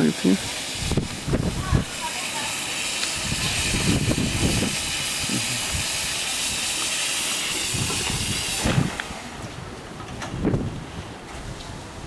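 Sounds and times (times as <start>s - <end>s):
steam locomotive hissing steam: 0.0s - 9.5s.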